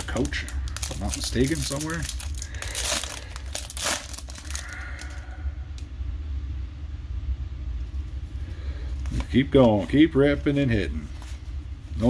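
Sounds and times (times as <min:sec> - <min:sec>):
foil wrapper crinkling and tearing: 0:00.0 - 0:05.2
wrapper handling: 0:00.0 - 0:05.2.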